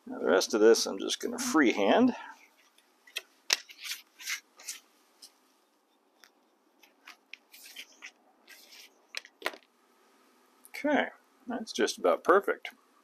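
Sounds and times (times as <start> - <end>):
card rustling: 2.6 - 5.4, 6.2 - 9.7.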